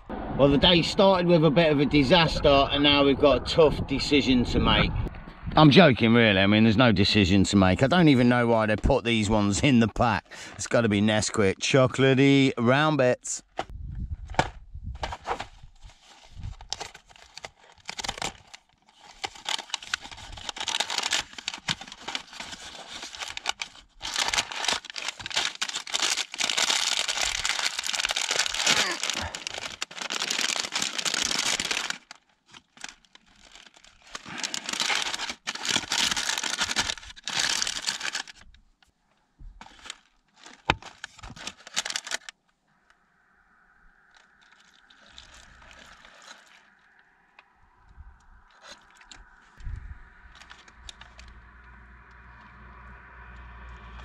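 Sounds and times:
plastic bag crinkling and ripping: 15.1s - 38.6s, 39.6s - 42.4s, 44.0s - 47.2s, 48.4s - 51.8s
cereal box being torn open: 16.7s - 38.4s, 39.6s - 42.4s.

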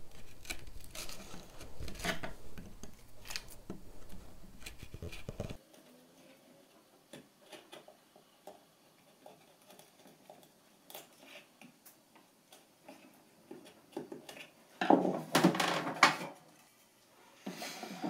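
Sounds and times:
chisel scraping wood: 0.0s - 5.6s.

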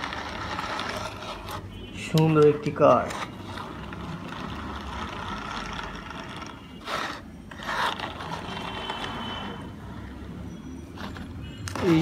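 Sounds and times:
toy car rattles: 0.0s - 1.6s, 3.0s - 9.2s
toy car wheels rolling whirr: 0.0s - 1.7s, 3.0s - 9.6s, 11.0s - 12.0s.

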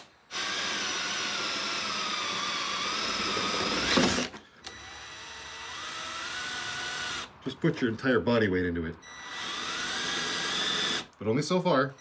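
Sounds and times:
cordless drill boring hole: 0.0s - 7.4s, 9.0s - 11.2s.

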